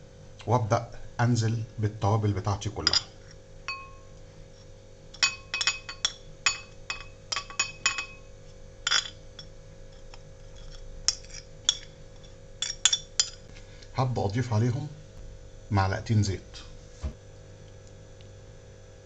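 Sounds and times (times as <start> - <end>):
metal spoon clinking on glass: 2.8 - 4.1, 5.2 - 9.5, 10.6 - 13.4.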